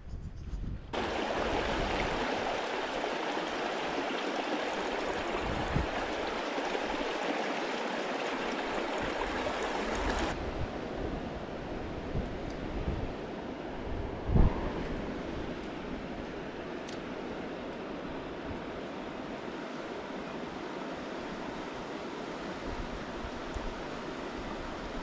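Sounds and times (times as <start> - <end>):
river rushing over stones: 1.0 - 10.4.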